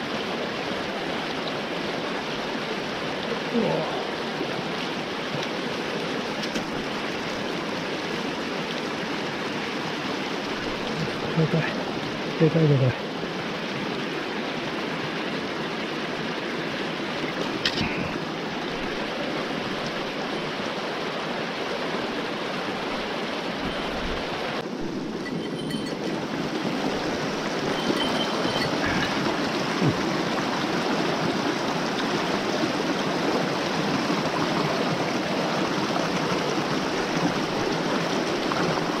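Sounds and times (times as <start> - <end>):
stream rushing over rocks: 0.0 - 39.0.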